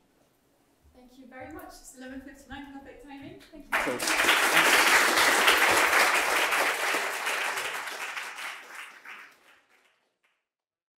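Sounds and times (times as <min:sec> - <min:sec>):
audience applauding: 0:03.7 - 0:10.0.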